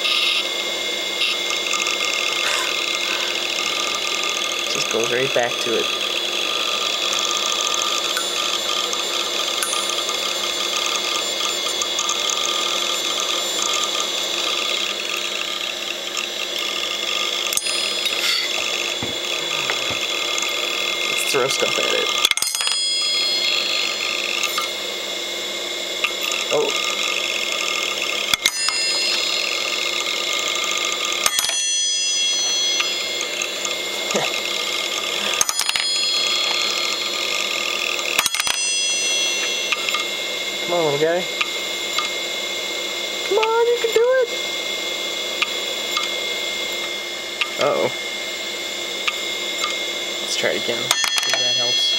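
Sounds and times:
hard drive platter whine: 0:00.0 - 0:51.9.

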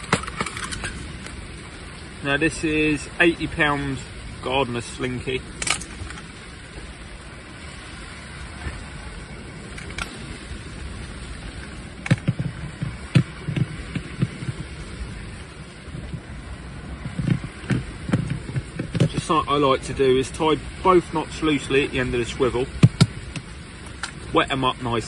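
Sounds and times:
rain pattering on fabric: 0:00.0 - 0:25.0
soft knocks and thumps: 0:12.0 - 0:14.8, 0:17.0 - 0:19.3, 0:22.8 - 0:23.5.

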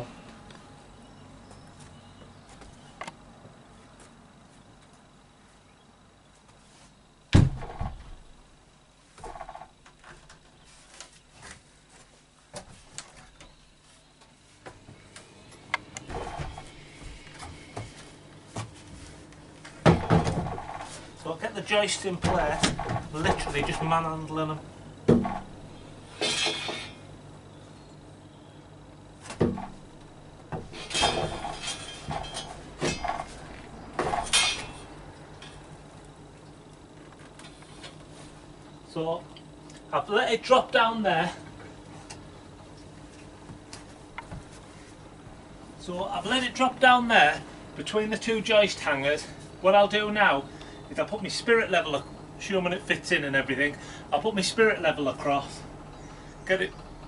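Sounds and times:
heavy wooden thud: 0:07.3 - 0:08.4, 0:19.8 - 0:21.0, 0:25.1 - 0:25.6, 0:29.3 - 0:29.9
wooden beam thump: 0:07.3 - 0:08.4, 0:19.8 - 0:20.9, 0:25.1 - 0:25.6, 0:29.3 - 0:29.9
timber creaking and knocking: 0:07.4 - 0:08.4, 0:09.2 - 0:10.5, 0:15.7 - 0:18.0, 0:19.8 - 0:21.0, 0:22.2 - 0:24.2, 0:25.1 - 0:25.6, 0:29.3 - 0:35.7.

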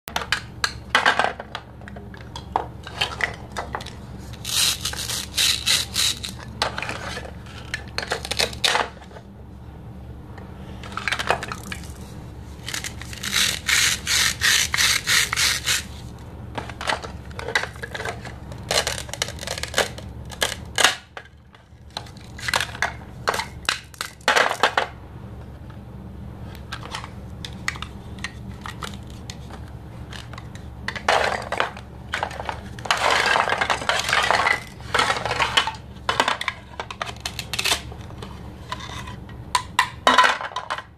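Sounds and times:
low steady hum: 0:00.1 - 0:40.9
plastic toys clicking together: 0:04.4 - 0:06.4, 0:12.6 - 0:15.9.

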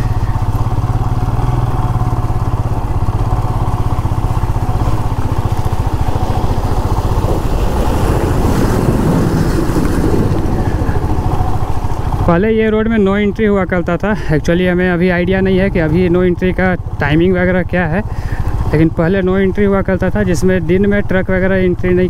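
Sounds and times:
truck passing close by: 0:00.0 - 0:12.3
motorcycle engine running: 0:00.0 - 0:22.0.

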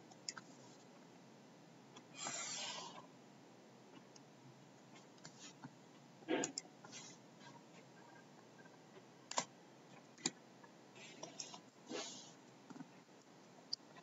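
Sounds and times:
computer mouse clicks: 0:00.1 - 0:00.5, 0:09.3 - 0:09.5.

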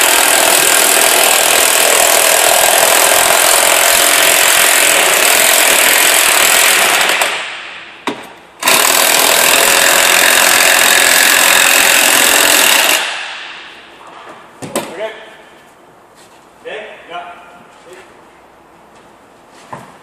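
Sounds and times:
power tool running: 0:00.0 - 0:07.8, 0:08.6 - 0:13.7.

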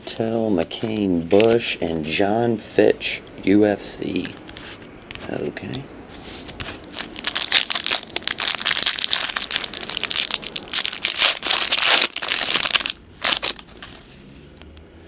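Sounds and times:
foil wrapper crinkling: 0:06.8 - 0:14.1.

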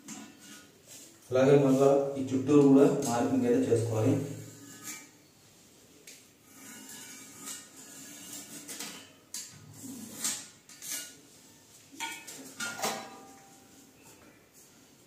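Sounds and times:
porcelain toilet scraping on tile: 0:04.1 - 0:05.2, 0:06.4 - 0:11.2.

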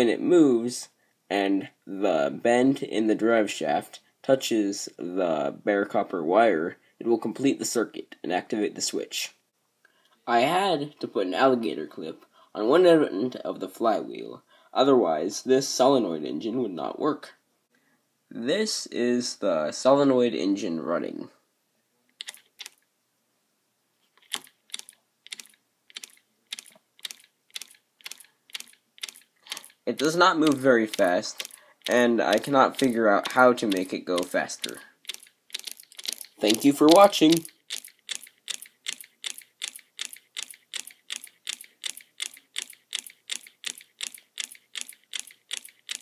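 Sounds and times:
solenoid engine clicking: 0:30.4 - 0:46.0.

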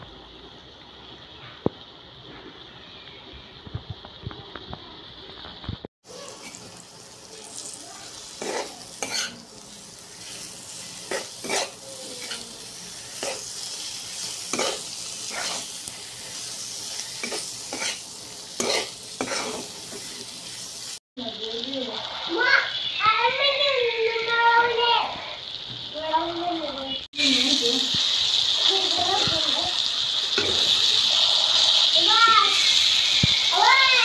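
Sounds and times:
beef sizzling in hot oil: 0:00.1 - 0:34.0
spatula scraping and knocking pan: 0:08.4 - 0:09.4, 0:10.2 - 0:12.4, 0:13.2 - 0:13.5, 0:14.5 - 0:15.8, 0:16.9 - 0:18.0, 0:18.6 - 0:20.2.

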